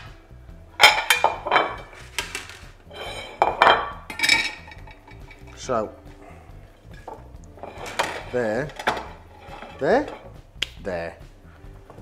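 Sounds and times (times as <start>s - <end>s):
plates and utensils clattering: 0.8s - 5.7s, 6.8s - 10.4s.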